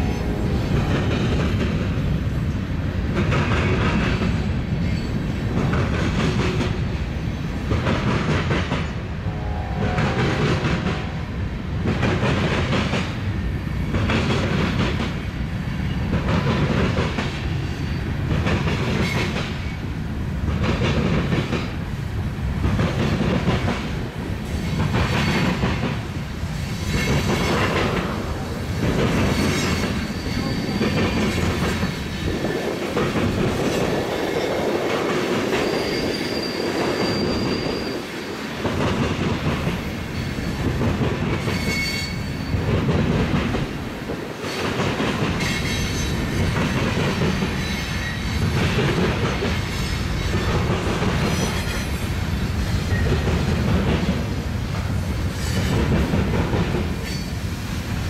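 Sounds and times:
train rumble: 0.0s - 58.0s
train wheels clacking on rails: 0.0s - 58.0s
high wheel squeal: 29.2s - 32.1s, 35.4s - 38.4s, 41.4s - 42.7s, 47.6s - 48.6s, 57.0s - 57.4s.

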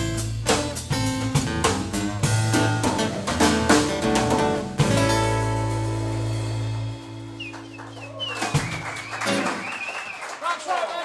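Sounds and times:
acoustic blues band playing: 0.0s - 9.9s
audience whistling: 7.3s - 10.6s
audience clapping: 7.4s - 11.0s.

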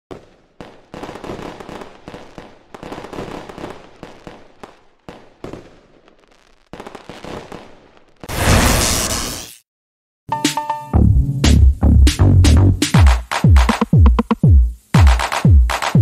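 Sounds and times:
fireworks bangs and crackles: 0.1s - 9.3s.

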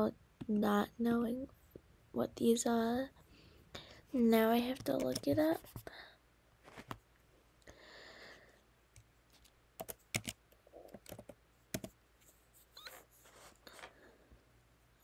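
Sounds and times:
soft rustle: 6.6s - 7.1s, 12.2s - 14.3s.

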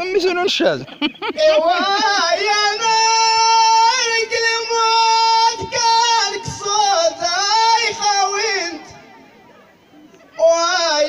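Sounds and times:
man singing into microphone: 1.4s - 9.0s, 10.4s - 11.0s.

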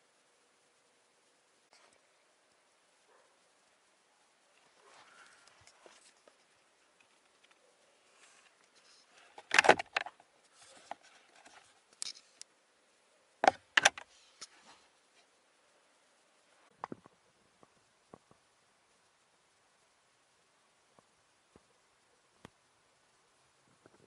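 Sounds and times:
plastic compartment clacking shut: 9.4s - 10.1s, 13.4s - 14.0s
plastic compartment clattering open: 9.4s - 10.1s.

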